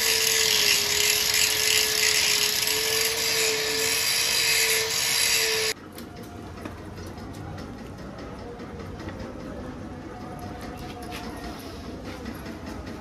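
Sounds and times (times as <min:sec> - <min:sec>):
angle grinder grinding metal pipe: 0:00.0 - 0:05.8.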